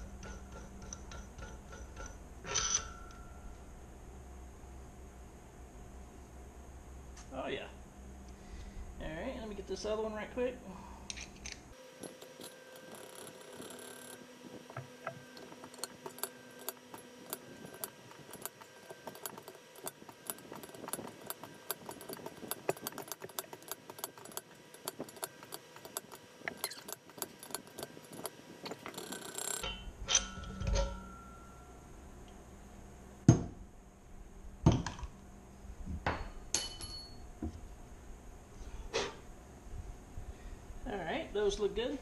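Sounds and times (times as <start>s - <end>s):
metal tool clicking and tapping: 0.0s - 3.2s, 11.1s - 30.9s.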